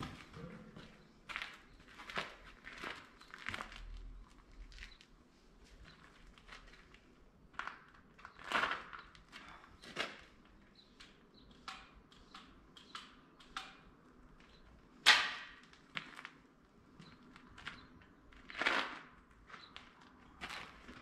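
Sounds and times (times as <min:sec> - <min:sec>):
tools clicking and knocking: 0:11.0 - 0:13.9.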